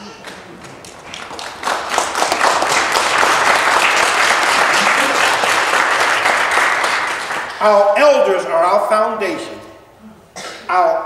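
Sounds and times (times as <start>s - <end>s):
audience applause: 0.2s - 7.9s.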